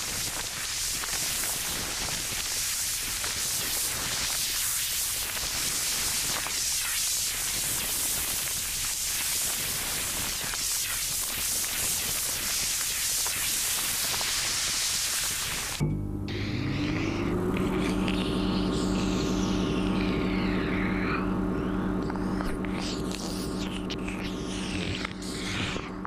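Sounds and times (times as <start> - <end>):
faint crackles: 0.0 - 15.8, 17.2 - 26.0
grapes sizzling in microwave: 0.0 - 16.3.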